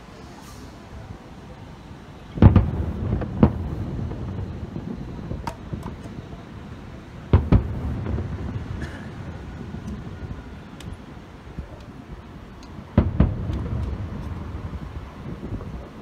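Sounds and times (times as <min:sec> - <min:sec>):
firework shells booming: 0:02.3 - 0:11.0, 0:12.6 - 0:15.7
low rolling rumble: 0:02.3 - 0:16.0
sharp firework cracks: 0:02.4 - 0:06.6, 0:07.2 - 0:11.2, 0:11.8 - 0:15.0.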